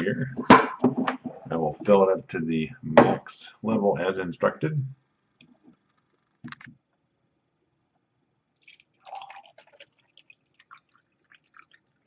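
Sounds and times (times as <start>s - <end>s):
water trickling and dripping: 8.6s - 12.0s.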